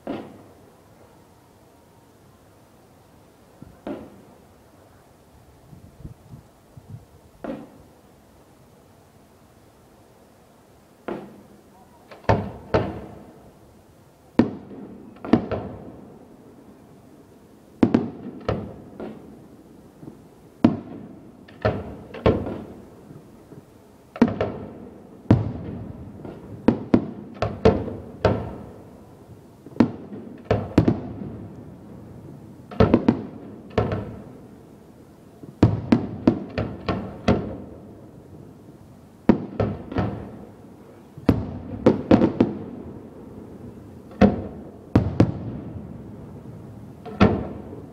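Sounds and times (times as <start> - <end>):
fireworks bursting with bangs: 0.0 - 0.8, 3.6 - 4.5, 7.3 - 8.1, 11.0 - 13.6, 14.3 - 16.8, 17.7 - 47.9.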